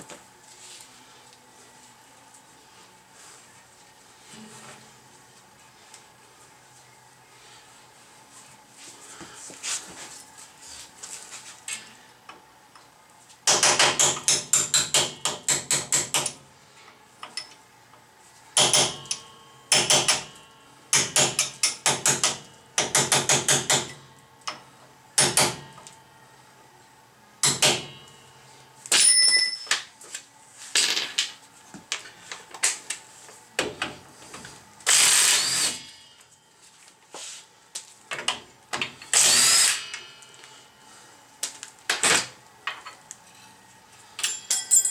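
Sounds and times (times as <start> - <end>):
hammer striking metal punch: 18.6 - 24.0, 27.4 - 28.0
power tool running: 34.8 - 35.8, 39.1 - 39.9.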